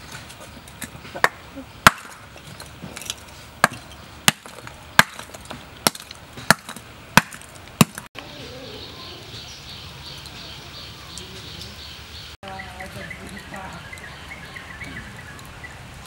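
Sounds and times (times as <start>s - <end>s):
hammer breaking charcoal: 0.8s - 8.1s.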